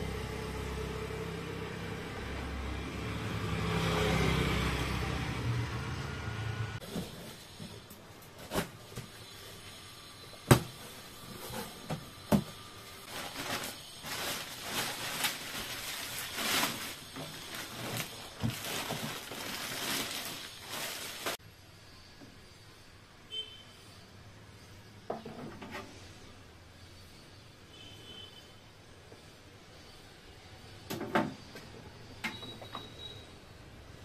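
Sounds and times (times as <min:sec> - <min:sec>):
plastic bag crinkling and rustling: 0:13.0 - 0:21.4.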